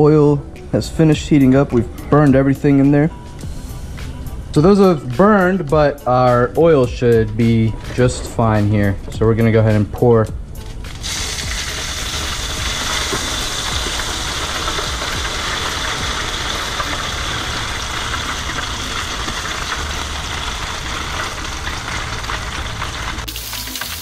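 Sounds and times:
hot oil sizzling on fish: 0:11.0 - 0:24.0.

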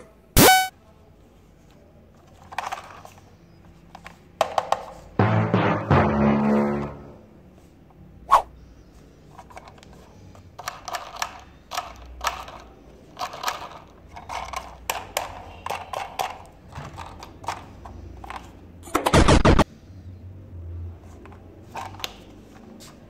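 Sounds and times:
plastic toy clicking and knocking: 0:02.3 - 0:03.2, 0:03.9 - 0:05.0, 0:09.4 - 0:19.1
loud burst: 0:19.1 - 0:19.6.

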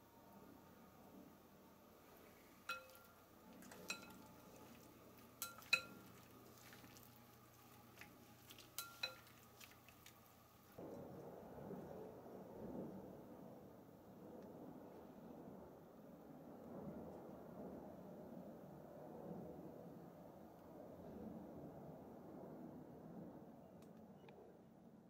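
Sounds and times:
chopsticks clinking on glass bowl: 0:02.6 - 0:07.0, 0:08.5 - 0:10.0.

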